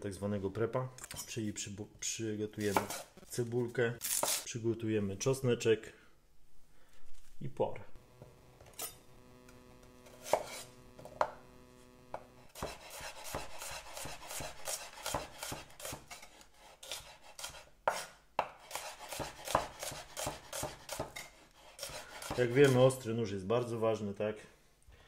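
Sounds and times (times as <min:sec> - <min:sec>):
knife chopping on wooden board: 0:02.7 - 0:03.1, 0:10.1 - 0:11.4, 0:12.1 - 0:22.8.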